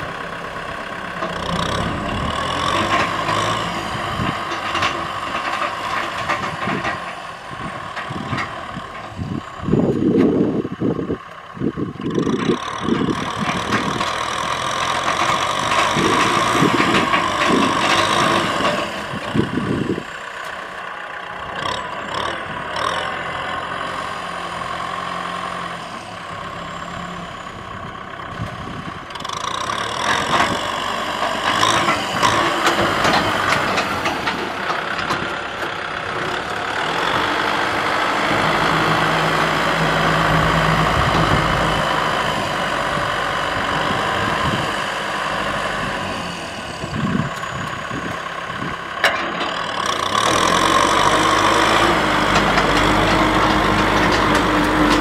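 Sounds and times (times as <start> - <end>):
tractor diesel engine under load: 0.0 - 55.0
plough discs and clods clattering: 1.2 - 7.2, 14.9 - 19.4, 29.8 - 36.4, 51.0 - 55.0.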